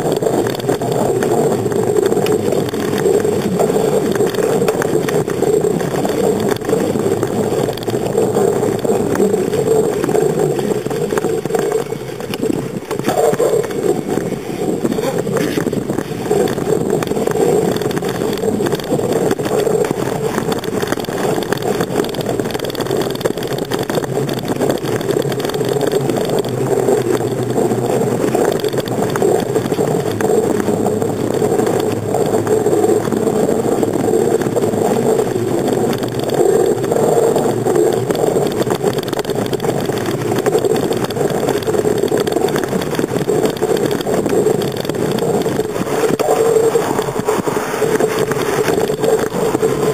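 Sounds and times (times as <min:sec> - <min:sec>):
bicycle tyres rolling on asphalt: 0:00.0 - 0:49.9
bike frame vibrating: 0:00.0 - 0:49.9.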